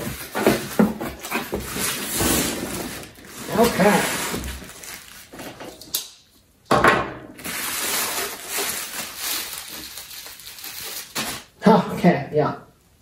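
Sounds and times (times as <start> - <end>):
bubble wrap crinkling: 0.0 - 5.9, 7.4 - 11.6.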